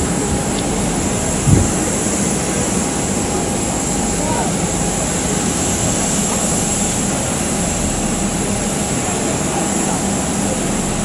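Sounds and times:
jet engine rush with high whine: 0:00.0 - 0:11.0.

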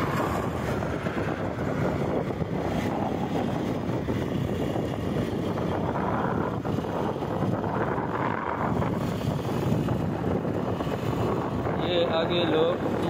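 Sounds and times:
wind rushing over microphone: 0:00.0 - 0:13.0.

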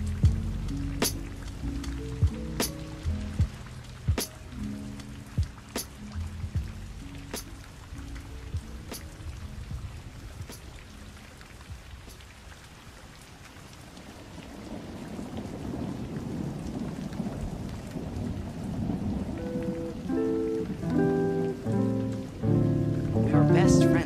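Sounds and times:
music notes: 0:00.0 - 0:11.3, 0:19.3 - 0:24.0
rain-like hiss: 0:00.0 - 0:24.0.

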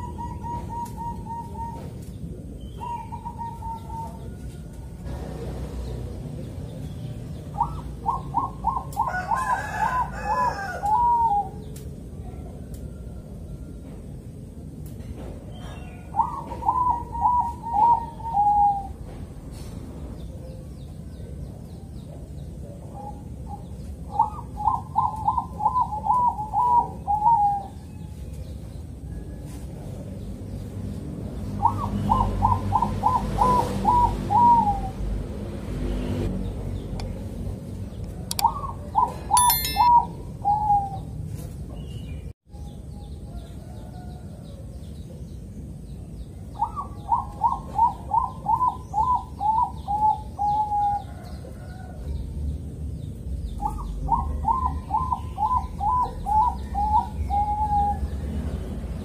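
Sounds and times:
dove cooing: 0:00.0 - 0:02.0, 0:07.5 - 0:12.5, 0:16.0 - 0:19.0, 0:22.6 - 0:27.9, 0:46.6 - 0:51.8.

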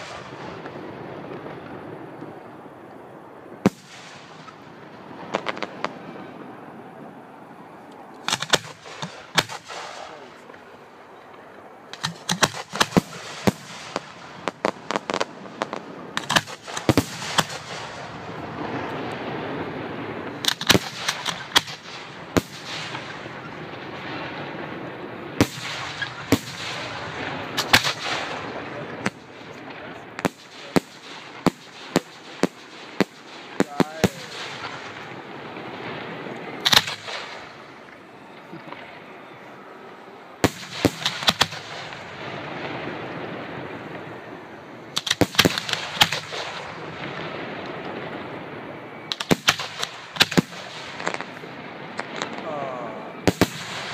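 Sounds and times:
noisy haze: 0:00.0 - 0:53.9
firework shells bursting: 0:08.2 - 0:10.8, 0:11.9 - 0:19.3, 0:20.2 - 0:23.7, 0:25.4 - 0:39.7, 0:40.3 - 0:44.1, 0:44.9 - 0:52.5.

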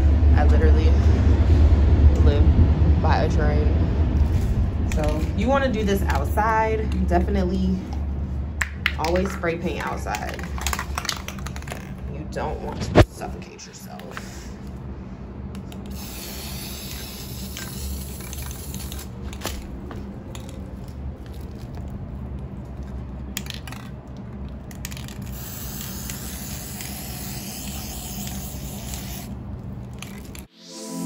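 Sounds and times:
spray paint can hissing: 0:15.8 - 0:19.6, 0:24.8 - 0:30.5.

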